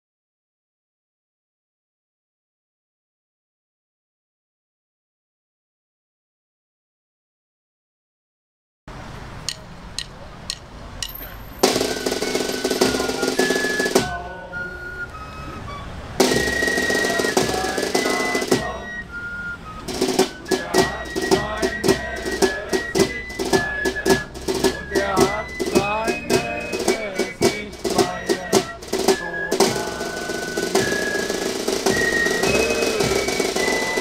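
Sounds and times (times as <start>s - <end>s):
drum and percussion music: 9.4s - 34.0s.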